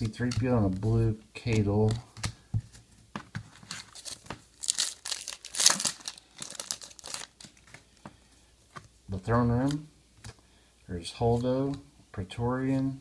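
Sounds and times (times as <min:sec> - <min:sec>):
foil wrapper crinkling and tearing: 0:03.7 - 0:07.8.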